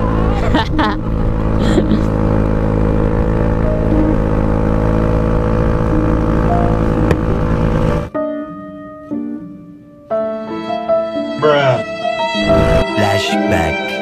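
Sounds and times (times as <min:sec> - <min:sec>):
motor scooter engine running: 0:00.0 - 0:08.1
slow music with held notes: 0:00.0 - 0:14.0.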